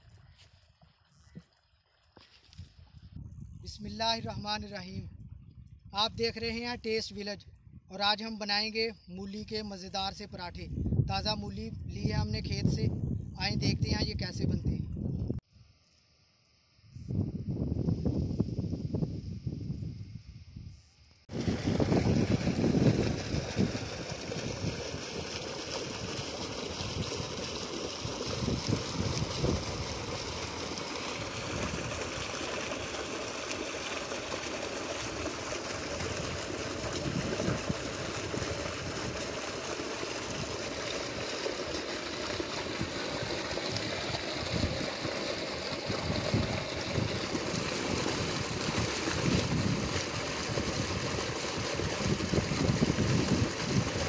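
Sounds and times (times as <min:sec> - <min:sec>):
water gushing into a tank: 0:21.3 - 0:54.0.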